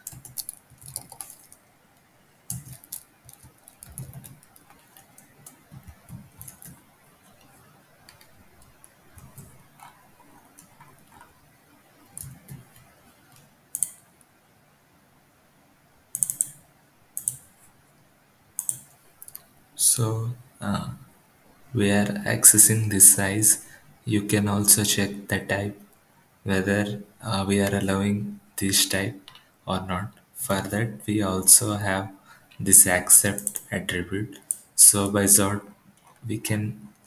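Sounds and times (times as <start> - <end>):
computer keyboard typing: 0.0 - 1.7, 2.5 - 11.4, 12.1 - 14.1, 16.1 - 16.6, 17.2 - 17.5, 18.6 - 19.5, 33.0 - 33.7
mouse clicks: 12.2 - 14.0, 16.1 - 16.6, 17.2 - 17.5, 18.6 - 19.5.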